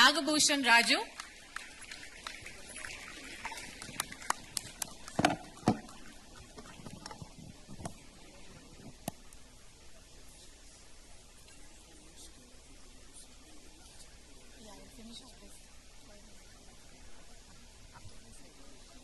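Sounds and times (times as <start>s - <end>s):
audience hand claps: 1.0s - 7.4s.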